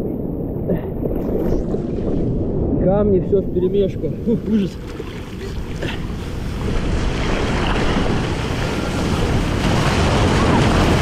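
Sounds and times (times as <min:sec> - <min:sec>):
sea surf churning and splashing: 0:00.0 - 0:11.0
wave crashing: 0:01.0 - 0:11.0.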